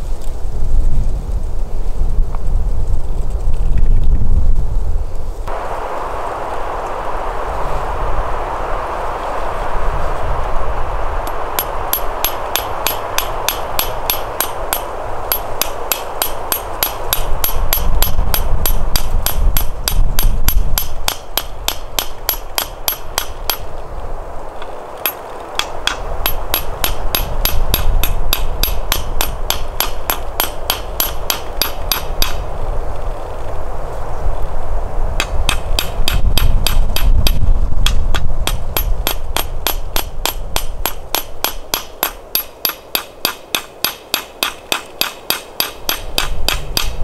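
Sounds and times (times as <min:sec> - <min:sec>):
hand hammer tapping: 0:25.0 - 0:32.4, 0:35.2 - 0:47.0.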